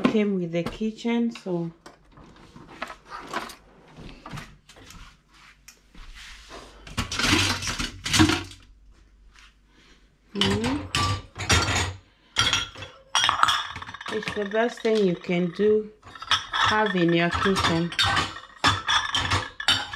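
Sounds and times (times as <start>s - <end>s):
kitchenware clattering: 6.9s - 8.6s, 10.4s - 19.9s.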